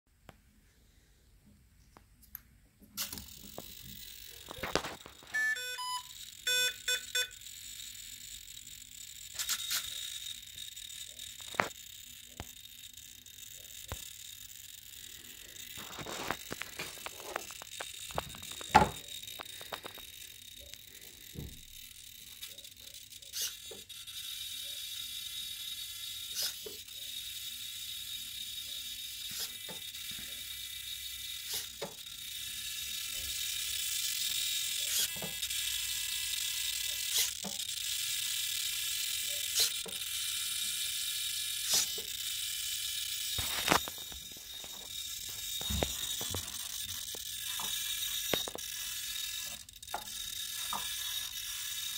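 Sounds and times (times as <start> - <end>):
servo clicks: 2.2 - 5.4, 6.1 - 51.9
servos buzzing with high whine: 2.9 - 51.9.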